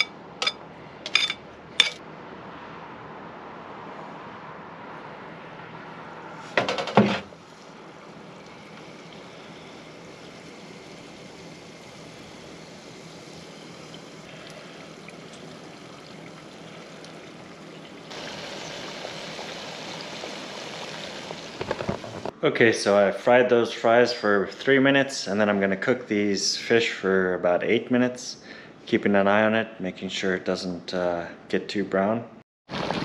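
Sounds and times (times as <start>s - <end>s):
oil bubbling and sizzling: 6.6s - 22.4s
burst of crackling oil: 18.1s - 22.3s.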